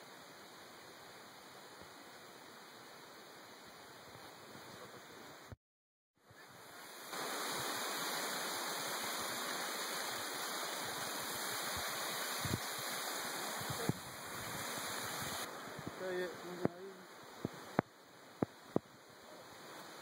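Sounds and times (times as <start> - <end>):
waterfall rushing: 6.4 - 20.0.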